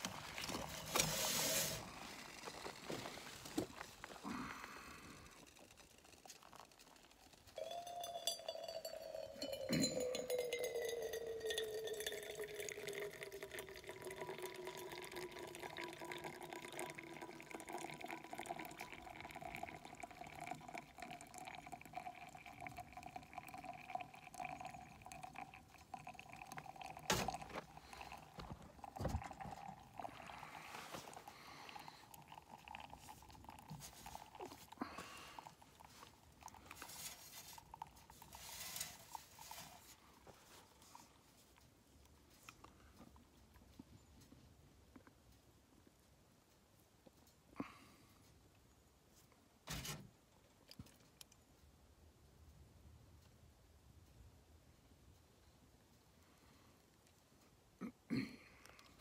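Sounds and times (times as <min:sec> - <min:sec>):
water pouring in a thin stream: 0:10.9 - 0:40.0.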